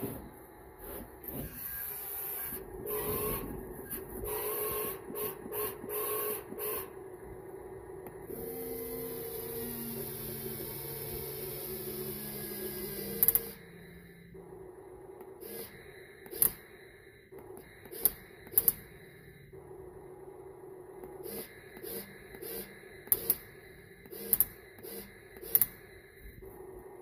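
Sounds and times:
small electric motors whining: 0.8 - 6.9, 8.3 - 14.3
sharp clicks: 13.2 - 13.5, 17.6 - 18.8, 24.2 - 24.6, 25.4 - 25.8.

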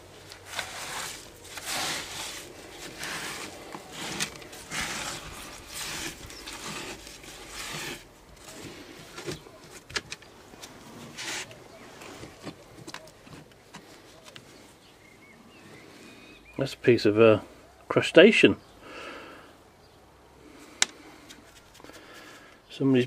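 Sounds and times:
rag scraping fibreglass floor: 0.0 - 9.4.

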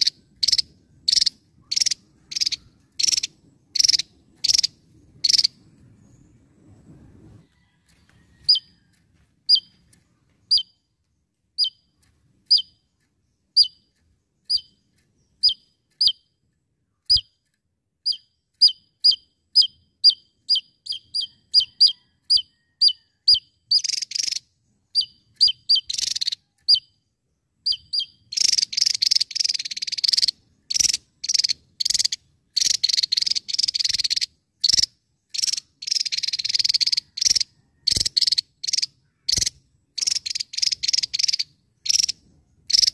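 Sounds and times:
bird calling: 0.0 - 5.6.

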